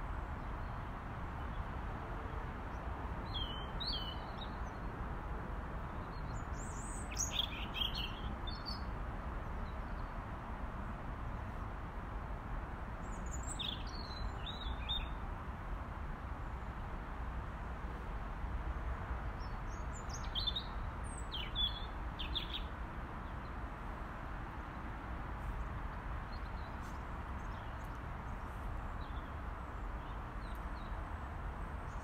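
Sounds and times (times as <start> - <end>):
robin singing: 6.5 - 8.9, 19.4 - 22.7.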